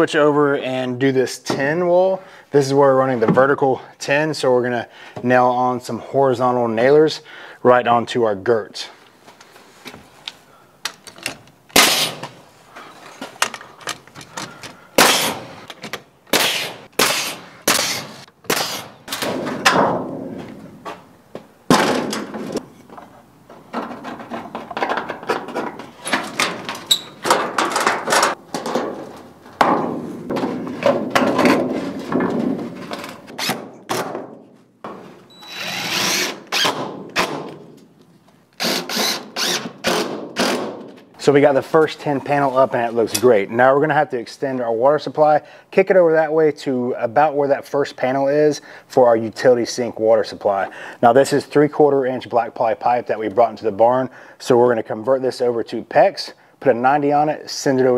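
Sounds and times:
nail-driving impacts: 10.8s - 12.4s, 13.4s - 21.0s, 21.7s - 22.7s, 23.7s - 37.8s, 38.6s - 41.0s
power drill running: 35.4s - 36.6s, 38.6s - 40.5s.

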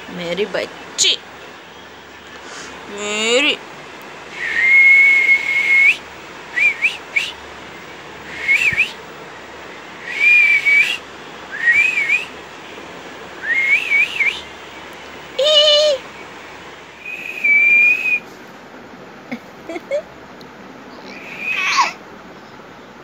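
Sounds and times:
person whistling: 4.4s - 6.0s, 6.6s - 7.3s, 8.3s - 9.0s, 10.1s - 11.0s, 11.6s - 12.3s, 13.4s - 14.4s, 17.0s - 18.2s.

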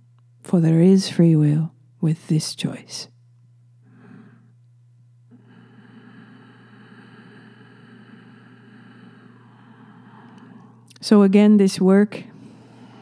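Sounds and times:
steady low hum: 0.0s - 13.0s
soft breathing: 3.8s - 4.7s, 5.3s - 11.0s, 12.2s - 13.0s.

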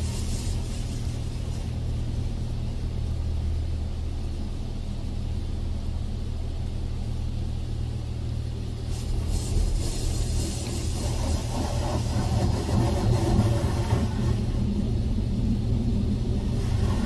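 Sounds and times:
water spray hissing on car: 0.0s - 3.2s, 8.6s - 17.0s
low rumble: 0.0s - 17.0s.

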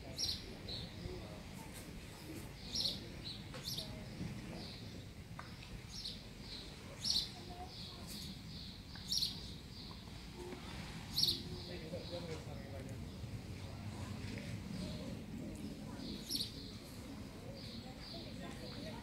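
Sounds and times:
low background murmur: 0.0s - 19.0s
songbird chirping: 2.5s - 13.8s.

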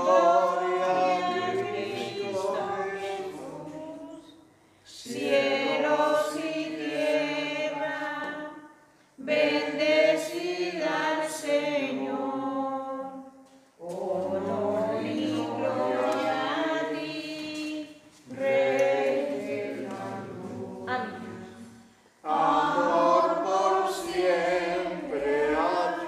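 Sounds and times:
group singing a hymn: 0.0s - 26.0s.

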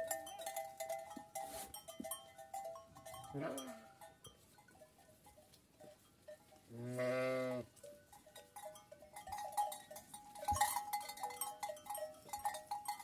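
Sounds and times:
sheep bleating: 6.7s - 7.7s.

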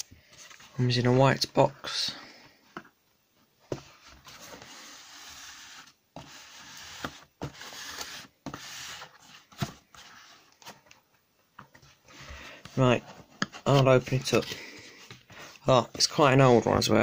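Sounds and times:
cardboard box scraping: 3.9s - 10.4s.

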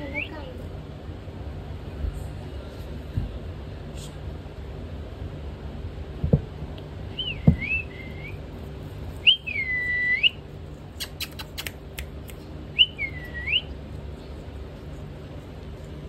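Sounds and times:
parakeet whistled calls: 7.2s - 8.4s, 12.8s - 13.7s
beak clicking on corn cob: 11.0s - 12.5s.

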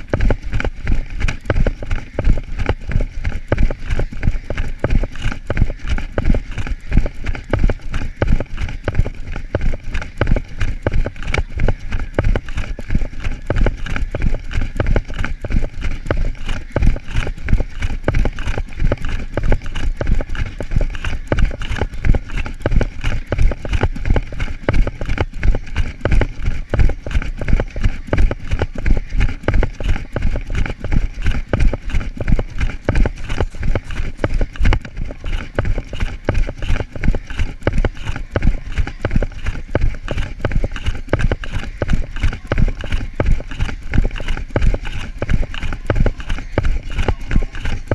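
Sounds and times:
running footsteps on grass: 0.0s - 47.9s.

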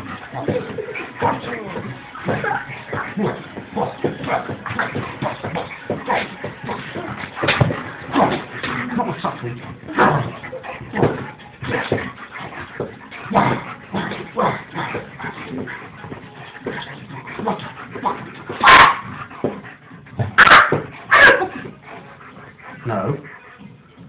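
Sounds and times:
dog barking: 18.6s - 19.1s, 20.4s - 21.5s.

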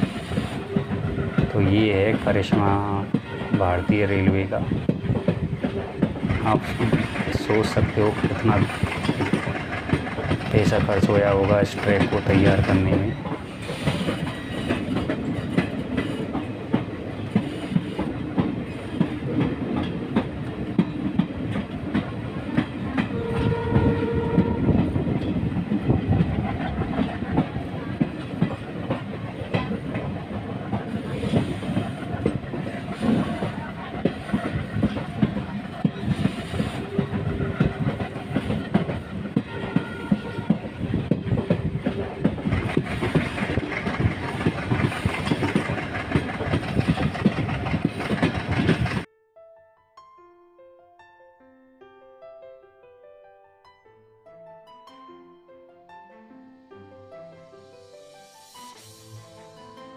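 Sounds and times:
train wheels clattering on rails: 0.0s - 49.1s
train horn: 3.1s - 4.2s, 23.0s - 25.0s, 38.9s - 41.0s.

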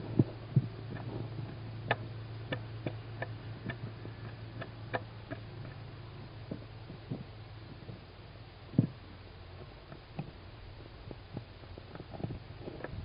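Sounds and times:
low hum: 0.0s - 13.0s
small clicks and scrapes: 9.6s - 13.0s.

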